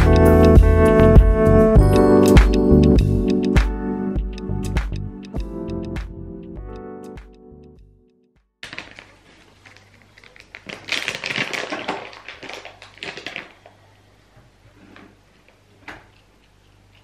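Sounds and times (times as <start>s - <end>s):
plastic pouch crinkling: 8.6s - 13.9s.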